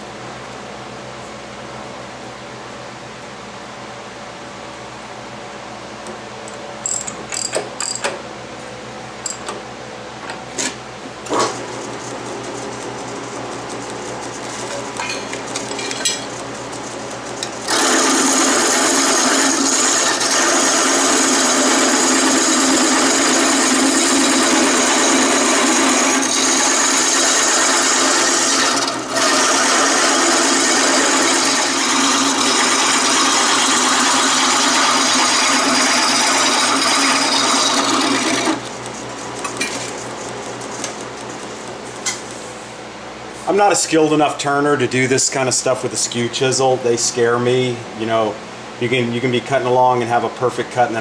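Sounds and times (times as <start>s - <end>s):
lathe running hum: 11.1s - 42.6s
gouge cutting wood on lathe: 17.6s - 39.6s.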